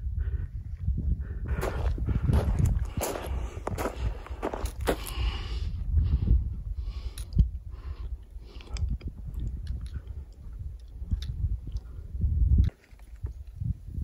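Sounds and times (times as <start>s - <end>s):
low rumble: 0.0s - 12.7s
footsteps on gravel: 1.5s - 5.2s.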